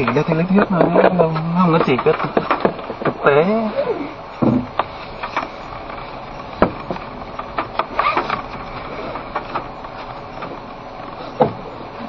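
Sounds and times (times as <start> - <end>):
clicks and knocks: 0.0 - 3.2
tyre and road noise: 0.0 - 12.0.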